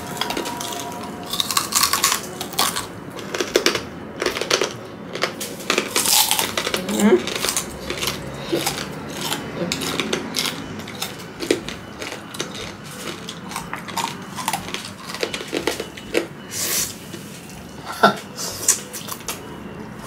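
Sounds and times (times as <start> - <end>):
crunching and chewing: 0.0 - 20.0.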